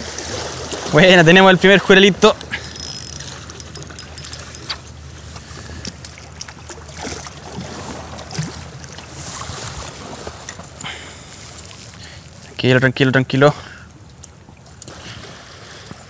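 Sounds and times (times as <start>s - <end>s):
small clicks and knocks: 2.4s - 4.8s
water lapping against rocks: 4.2s - 12.6s.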